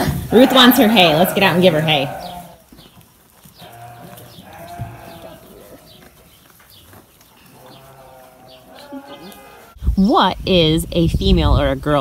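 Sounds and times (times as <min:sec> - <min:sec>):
hay rustling: 0:00.3 - 0:09.8.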